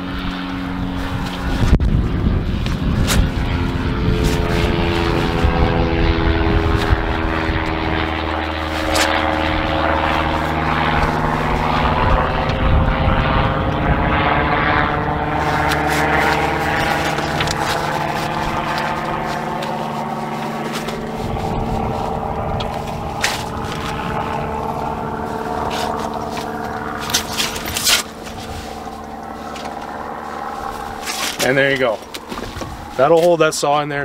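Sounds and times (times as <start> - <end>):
engine drone: 0.0 - 34.0
low hum: 0.0 - 34.0.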